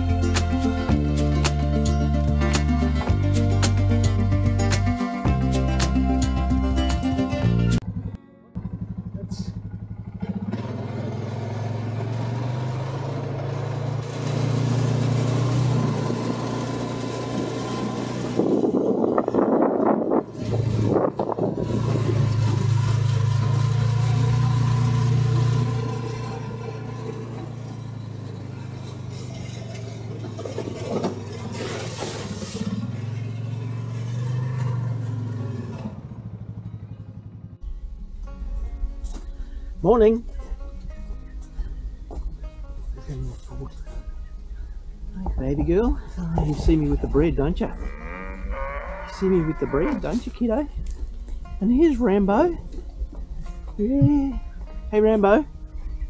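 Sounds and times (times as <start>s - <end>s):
motorbike engine running: 7.0s - 56.0s
rattling clatter: 25.3s - 34.0s.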